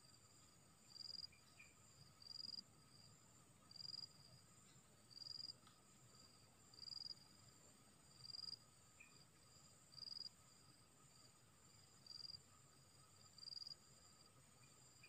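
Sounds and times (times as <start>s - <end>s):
insect chirp: 0.0s - 15.0s
insect drone: 0.0s - 15.0s.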